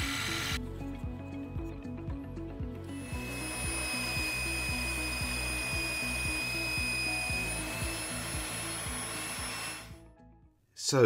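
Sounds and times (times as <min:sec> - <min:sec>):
power tool whining: 0:00.0 - 0:00.6, 0:02.9 - 0:10.0
background music with steady beat: 0:00.0 - 0:11.0.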